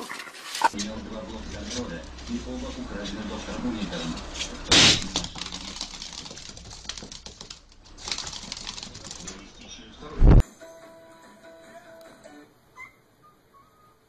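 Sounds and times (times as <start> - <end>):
balloon bursting: 4.7 - 5.9.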